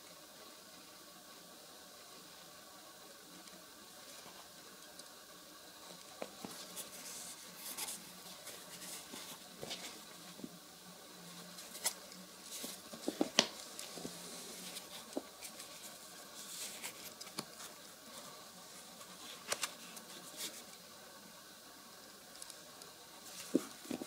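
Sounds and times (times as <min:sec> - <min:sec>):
rubbing of shoe material: 0:23.3 - 0:24.0.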